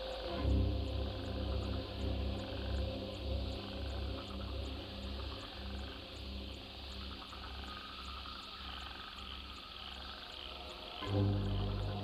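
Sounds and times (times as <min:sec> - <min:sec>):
low pulsing throb: 0:00.0 - 0:08.2, 0:11.0 - 0:12.0.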